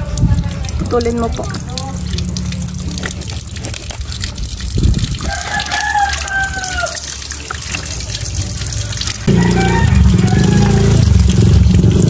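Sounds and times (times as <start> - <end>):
rooster crowing: 5.2 - 7.2, 9.2 - 11.1.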